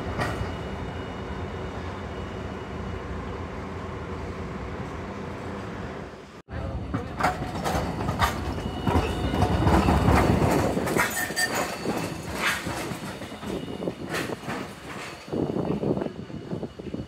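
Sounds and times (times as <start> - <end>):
tram wheels rumbling and clacking: 0.0 - 17.0
faint wheel squeal: 11.0 - 14.4.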